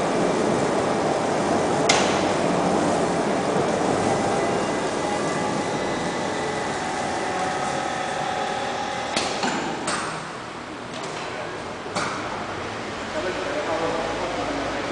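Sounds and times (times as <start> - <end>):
machine humming with faint whine: 0.0 - 11.2.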